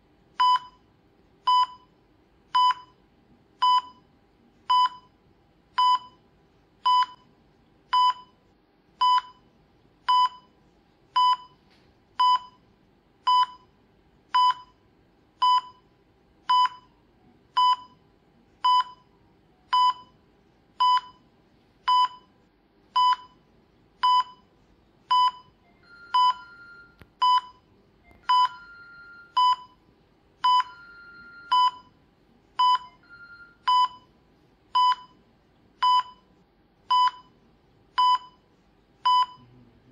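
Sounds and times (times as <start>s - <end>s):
patient monitor pulse beeps: 0.4s - 0.9s, 1.5s - 1.9s, 2.5s - 3.0s, 3.6s - 5.2s, 5.8s - 7.3s, 7.9s - 8.4s, 9.0s - 11.6s, 12.2s - 14.8s, 15.4s - 15.9s, 16.5s - 20.2s, 20.8s - 22.4s, 23.0s - 23.4s, 24.0s - 24.5s, 25.1s - 29.8s, 30.4s - 32.0s, 32.6s - 35.2s, 35.8s - 39.4s.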